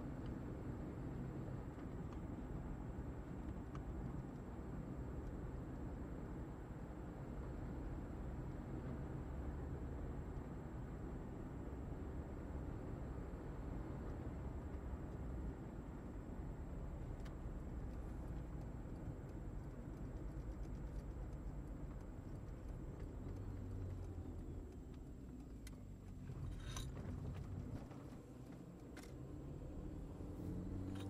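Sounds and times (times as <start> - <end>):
tyre and road noise: 13.4 - 31.0.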